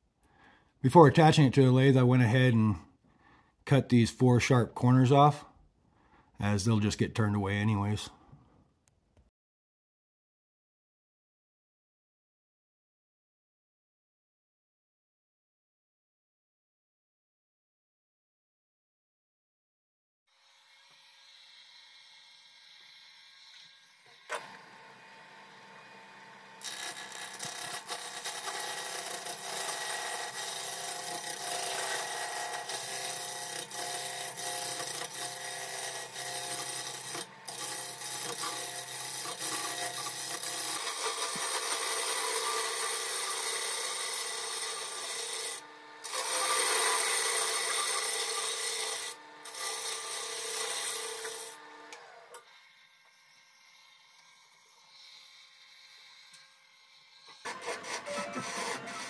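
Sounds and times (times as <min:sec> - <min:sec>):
lathe tool cutting wood: 0:20.4 - 0:59.0.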